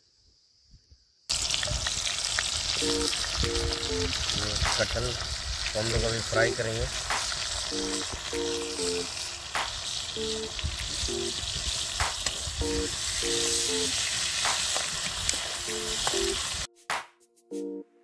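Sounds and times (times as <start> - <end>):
food sizzling in oil: 1.3 - 16.7
background music of repeated notes: 2.8 - 4.1, 7.7 - 9.1, 10.2 - 10.5, 11.1 - 11.3, 12.6 - 13.9, 15.7 - 18.0.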